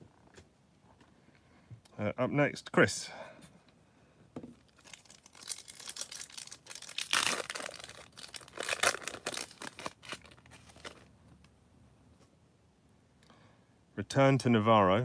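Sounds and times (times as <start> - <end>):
foil wrapper tearing and crumpling: 4.7 - 11.1.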